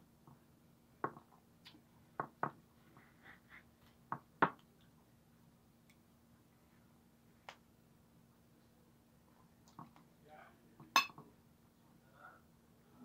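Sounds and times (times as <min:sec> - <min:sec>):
cutlery knocking against a plate: 0:10.9 - 0:11.3.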